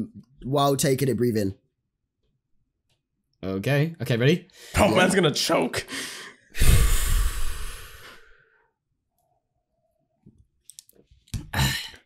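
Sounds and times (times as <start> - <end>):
man breathing out loudly: 5.9 - 8.7.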